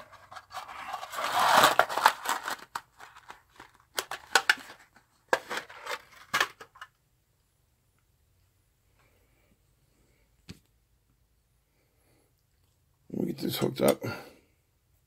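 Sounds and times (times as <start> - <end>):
rummaging in metal tin: 0.0 - 3.3, 4.0 - 6.8.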